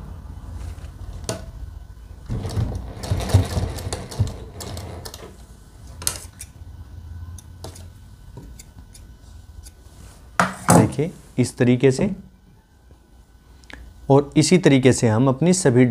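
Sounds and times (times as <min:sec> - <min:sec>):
sewing machine stitching: 0:02.3 - 0:05.4.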